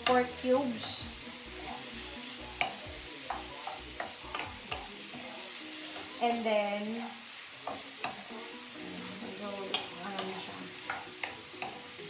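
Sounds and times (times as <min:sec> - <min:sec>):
meat sizzling in a frying pan: 0:00.0 - 0:12.0.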